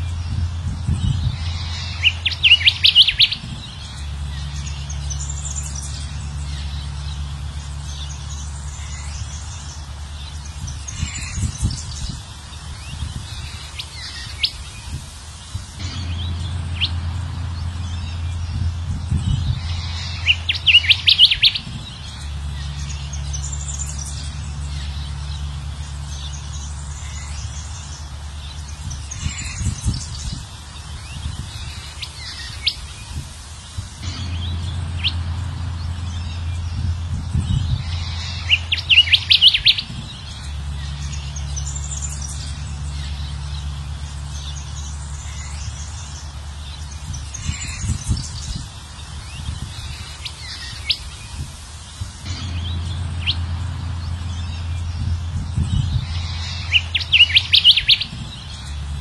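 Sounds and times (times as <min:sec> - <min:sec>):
bird song chirps: 0:00.0 - 0:59.0
low steady hum: 0:00.0 - 0:59.0.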